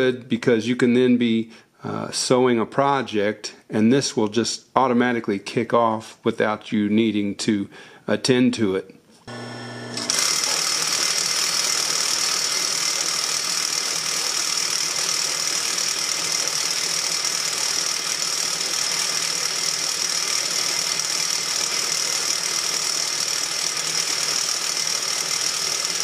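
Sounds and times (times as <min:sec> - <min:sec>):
sewing machine whirring: 0:09.3 - 0:26.0.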